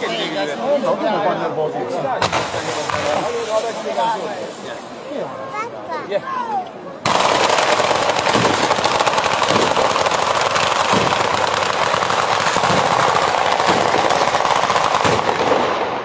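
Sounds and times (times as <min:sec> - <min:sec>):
firecrackers rapid rattle of bangs: 0:02.2 - 0:04.9, 0:07.0 - 0:16.0.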